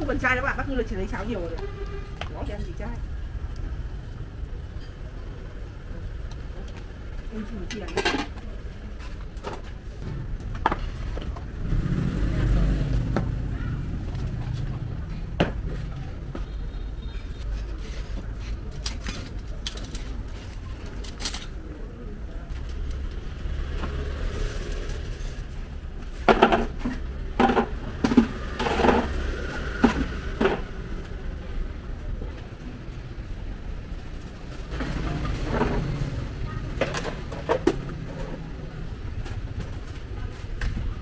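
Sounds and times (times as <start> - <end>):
people talking: 0.0 - 3.1, 5.1 - 10.3, 34.8 - 41.0
traffic rumble: 0.0 - 41.0
clacks of objects being handled: 18.0 - 21.6, 26.0 - 29.2, 36.7 - 38.4.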